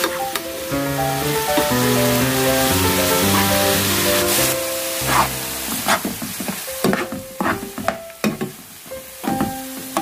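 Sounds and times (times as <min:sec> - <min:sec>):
soft sizzling: 0:00.0 - 0:10.0
metal spoon scraping frying pan: 0:05.0 - 0:06.1.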